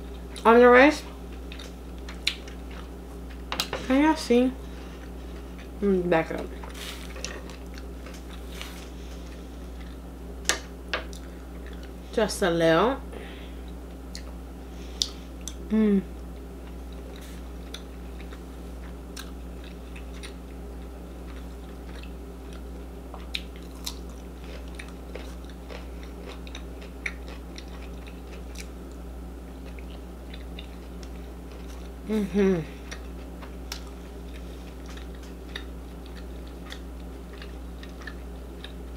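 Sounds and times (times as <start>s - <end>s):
steady low hum: 0.0s - 38.9s
person humming: 15.7s - 16.1s, 32.0s - 32.8s
close chewing: 16.7s - 32.0s, 32.8s - 38.9s.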